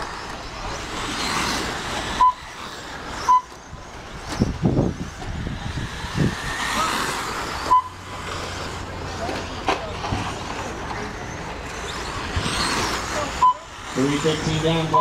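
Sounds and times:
electric rc trucks running: 0.0s - 15.0s
short high beeps: 2.2s - 2.5s, 3.2s - 3.5s, 7.7s - 8.0s, 13.4s - 13.7s.

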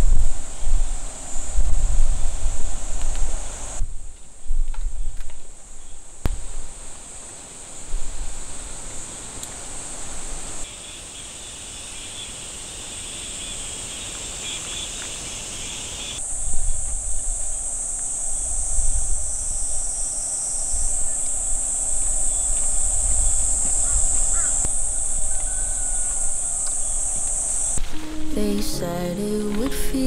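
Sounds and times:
wind rumble on microphone: 0.0s - 6.8s, 16.2s - 30.0s
lower insect buzz: 5.8s - 30.0s
insects buzzing high-pitched: 6.3s - 30.0s.

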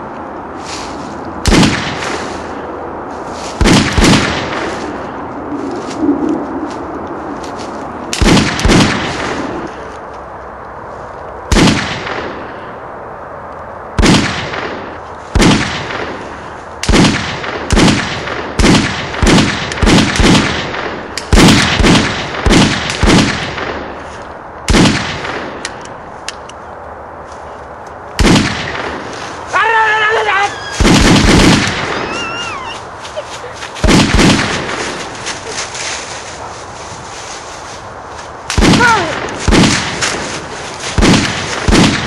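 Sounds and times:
gunshots echoing: 1.4s - 2.6s, 3.6s - 5.1s, 8.1s - 9.7s, 11.5s - 12.6s, 14.0s - 24.1s, 24.7s - 25.7s, 28.2s - 29.2s, 30.8s - 32.4s, 33.8s - 35.5s, 38.5s - 42.0s.

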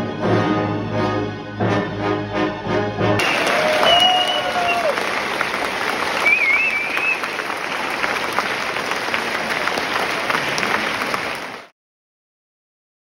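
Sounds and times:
audience applauding: 3.2s - 11.7s.

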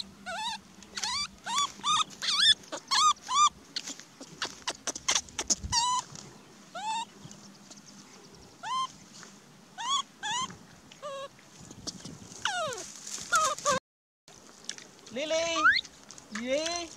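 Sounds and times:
baby monkey whimpering cries: 0.0s - 7.1s, 8.6s - 8.9s, 9.8s - 11.3s, 12.4s - 13.8s, 15.6s - 15.8s.

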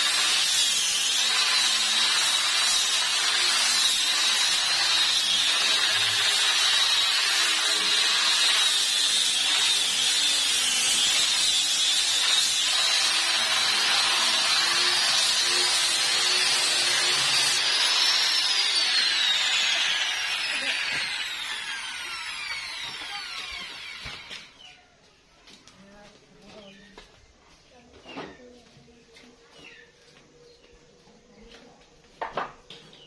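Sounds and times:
electric sander on wood: 0.0s - 24.6s.

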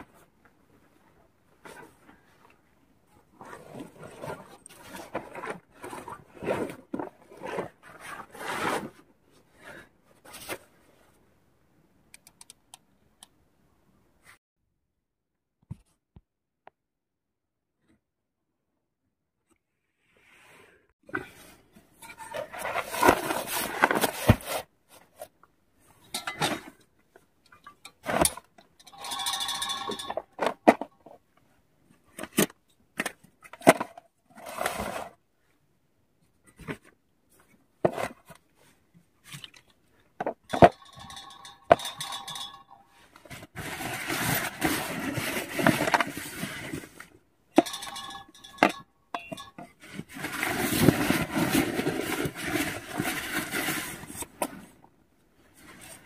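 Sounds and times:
camping gear knocking and clinking: 26.0s - 31.2s, 39.3s - 46.7s, 47.5s - 54.7s.

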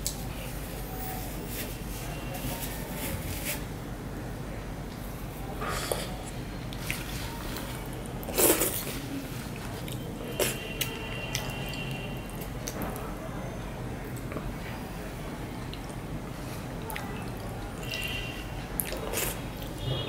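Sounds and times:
chewing noises: 5.6s - 13.2s, 18.8s - 19.8s.

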